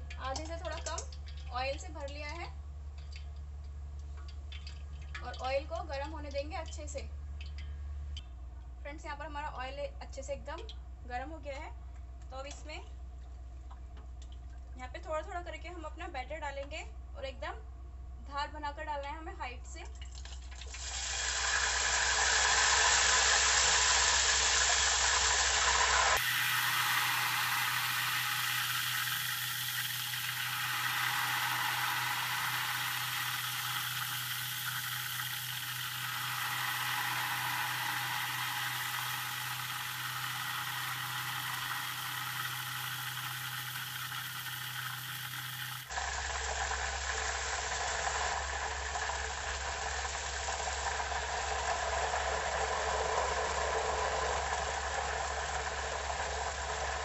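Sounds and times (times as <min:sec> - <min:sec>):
batter sizzling in hot oil: 0:20.3 - 0:57.0.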